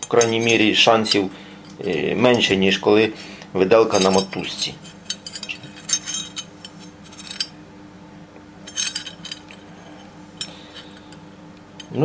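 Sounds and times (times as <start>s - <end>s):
iron pieces clinking: 0.0s - 2.6s, 3.8s - 7.6s, 8.7s - 11.2s.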